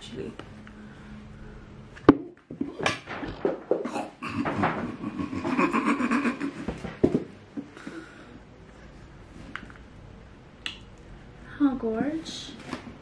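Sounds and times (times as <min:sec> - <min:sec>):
handling rustling and knocks: 0:02.0 - 0:05.0, 0:06.6 - 0:07.7.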